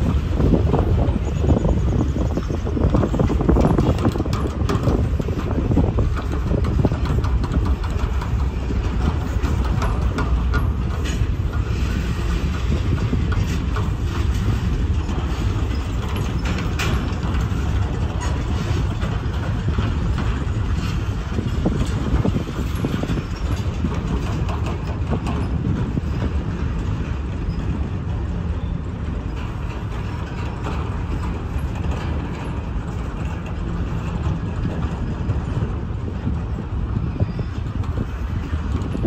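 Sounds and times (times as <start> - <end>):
freight train rumbling: 0.0 - 39.0
wheels clicking over track: 0.0 - 39.0.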